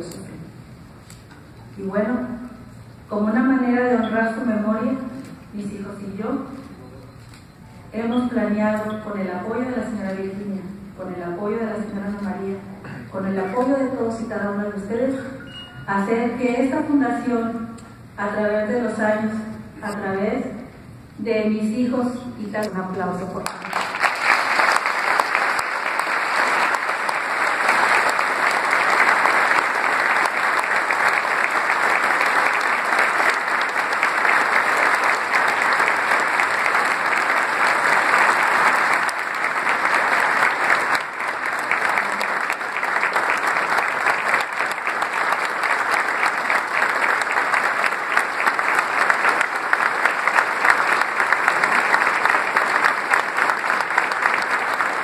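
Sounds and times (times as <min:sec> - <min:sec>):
audience applauding: 0:23.4 - 0:55.0.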